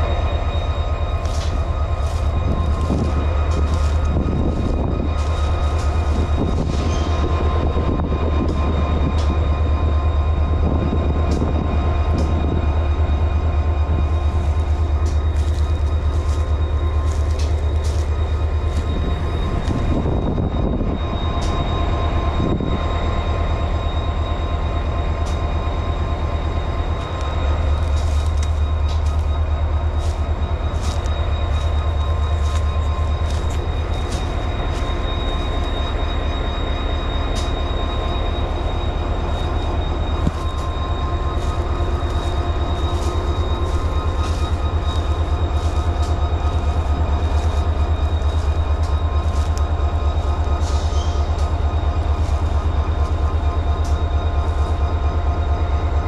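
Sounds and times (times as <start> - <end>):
diesel locomotive engine humming: 0.0 - 56.0
high-pitched wheel squeal: 0.0 - 56.0
wheels clicking on track: 26.6 - 56.0.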